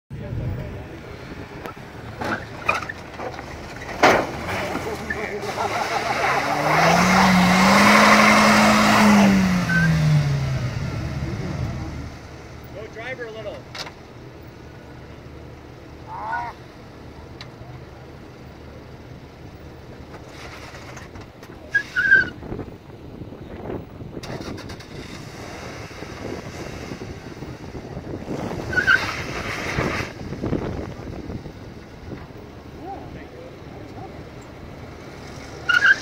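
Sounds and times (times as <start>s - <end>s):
vehicle engine under load: 0.1s - 36.0s
people calling out: 16.0s - 16.7s.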